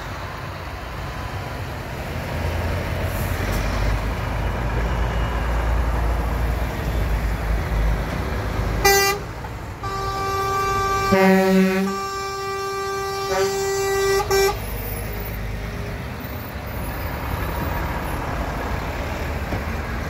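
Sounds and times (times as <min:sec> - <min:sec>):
diesel lorry engines rumbling: 0:00.0 - 0:20.0
truck horn blast: 0:08.8 - 0:14.9.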